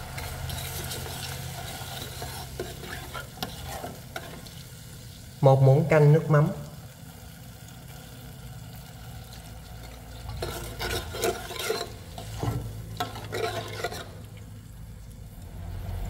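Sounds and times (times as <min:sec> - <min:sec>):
metal spoon scraping a saucepan: 0:00.1 - 0:04.6, 0:09.8 - 0:14.4.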